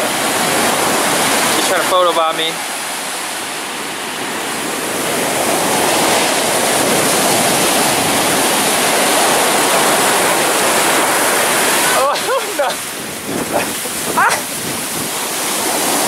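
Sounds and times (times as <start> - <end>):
ocean surf breaking on sand: 0.0 - 16.0.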